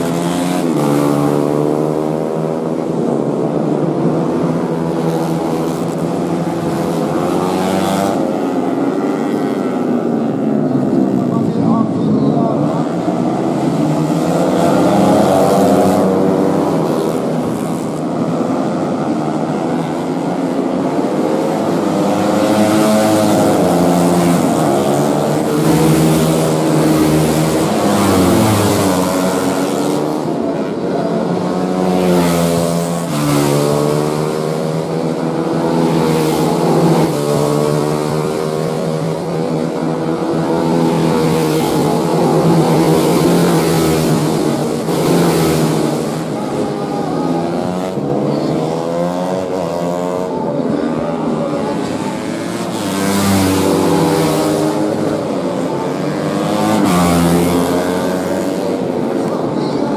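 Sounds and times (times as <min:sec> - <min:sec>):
motorcycles revving past: 0:00.0 - 0:59.9.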